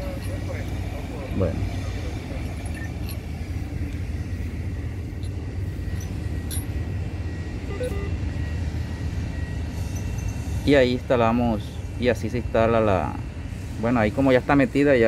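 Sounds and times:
faint high tone: 0:07.6 - 0:08.3.

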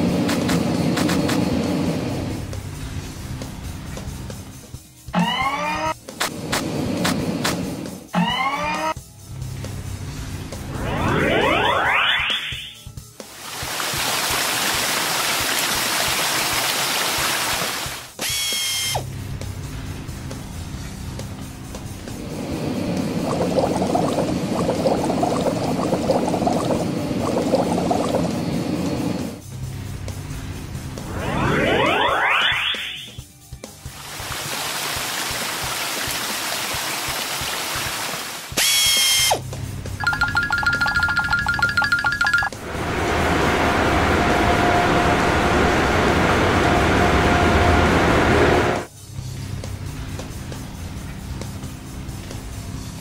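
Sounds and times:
music: 0:00.0 - 0:14.9, 0:17.2 - 0:42.9, 0:48.8 - 0:53.0
high tone dropping in pitch: 0:10.7 - 0:12.8, 0:31.0 - 0:33.2, 0:40.0 - 0:48.9
low hum: 0:22.0 - 0:33.1, 0:40.0 - 0:50.1.

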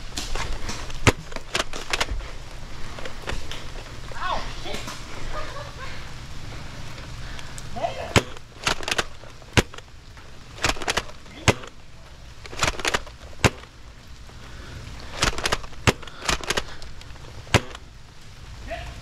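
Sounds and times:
plastic clacks of blaster priming: 0:00.2 - 0:02.2, 0:08.2 - 0:09.9, 0:10.6 - 0:11.8, 0:12.4 - 0:13.7, 0:15.1 - 0:17.8
toy blaster shot snap: 0:10.6 - 0:11.7.

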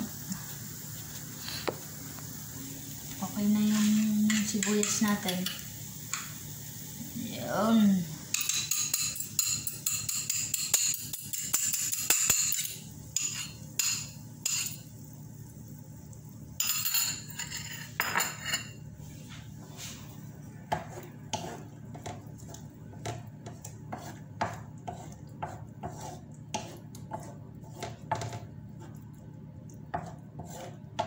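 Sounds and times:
onions sizzling in a pan: 0:00.0 - 0:26.7
utensils clinking against dishes: 0:03.8 - 0:06.3, 0:08.3 - 0:14.9, 0:16.6 - 0:18.8.

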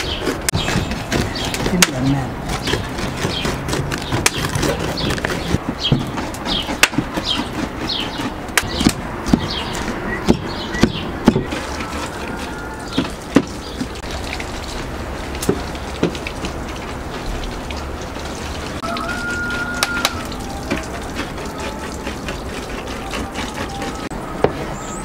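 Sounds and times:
knife chopping on wooden board: 0:00.0 - 0:12.4, 0:13.0 - 0:13.9.

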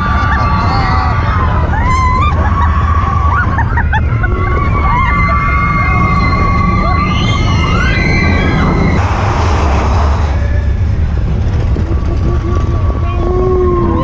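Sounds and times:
riders whooping and screaming: 0:00.0 - 0:09.0, 0:11.6 - 0:14.0
roller coaster train rumble: 0:00.0 - 0:14.0
wind rush on microphone: 0:00.0 - 0:14.0
high squeal rising in pitch: 0:04.6 - 0:10.8.

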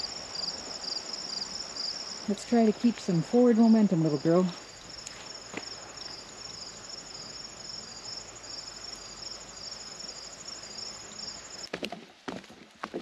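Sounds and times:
crickets chirping: 0:00.0 - 0:11.7
footsteps on wooden boardwalk: 0:05.1 - 0:05.8, 0:11.6 - 0:13.0.

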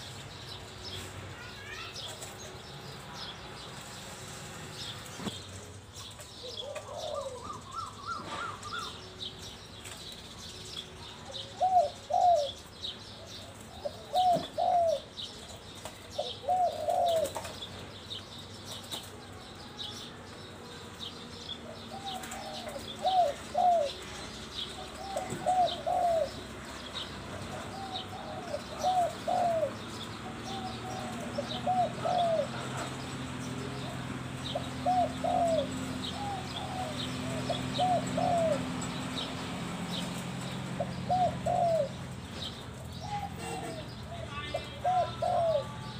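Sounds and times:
small birds chirping: 0:00.0 - 0:45.9
dove cooing: 0:06.4 - 0:09.0, 0:11.2 - 0:17.7, 0:21.6 - 0:45.9.

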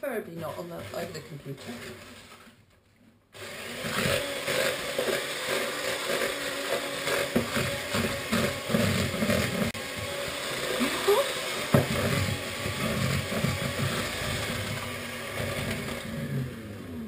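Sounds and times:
electric hand mixer running: 0:03.4 - 0:17.0.

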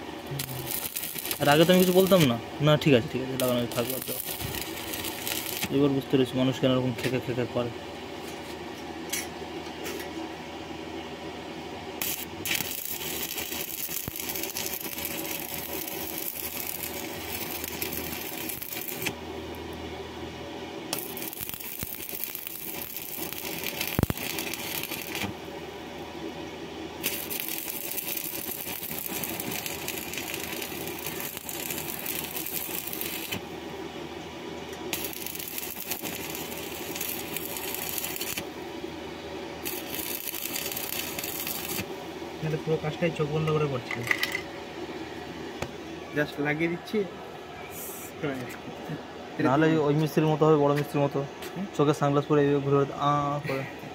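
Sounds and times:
welding arc crackling and sizzling: 0:00.0 - 0:07.4, 0:11.9 - 0:19.7, 0:20.9 - 0:26.1, 0:26.9 - 0:33.8, 0:34.6 - 0:39.0, 0:39.6 - 0:43.8.

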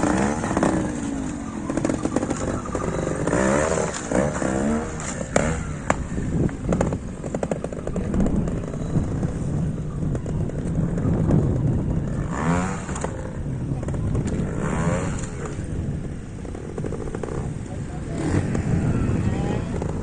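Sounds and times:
motorcycle engine revving: 0:00.0 - 0:20.0.

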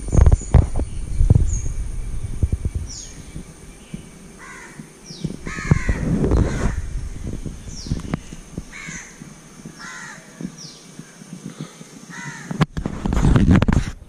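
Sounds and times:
low rumbling noise burst: 0:00.0 - 0:14.0
crow cawing: 0:04.4 - 0:06.9, 0:08.2 - 0:10.5, 0:12.1 - 0:12.6.

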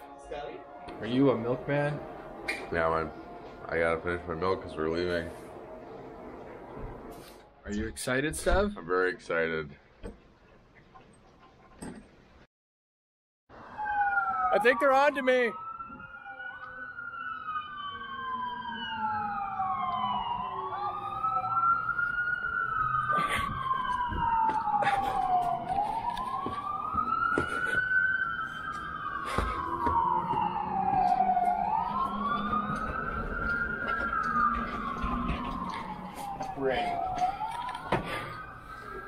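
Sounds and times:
emergency sirens wailing: 0:00.0 - 0:07.7, 0:13.5 - 0:39.0.

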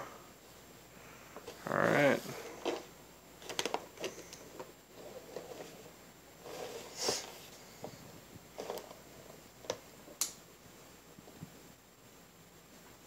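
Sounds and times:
packaging rustling: 0:02.4 - 0:05.8.

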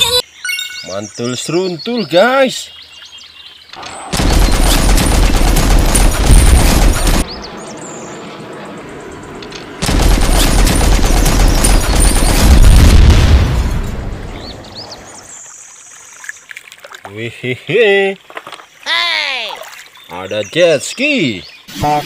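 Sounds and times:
machine-gun bursts: 0:04.2 - 0:07.3, 0:09.8 - 0:12.9.

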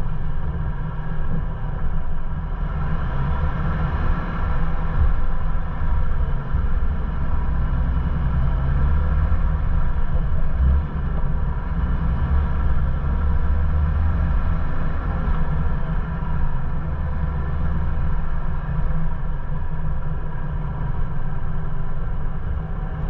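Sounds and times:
engine and drivetrain rumble: 0:00.0 - 0:23.0.

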